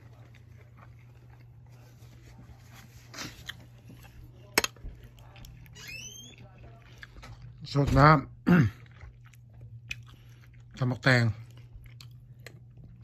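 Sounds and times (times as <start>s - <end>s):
quiet chewing clicks: 8.8s - 10.8s, 11.4s - 13.0s.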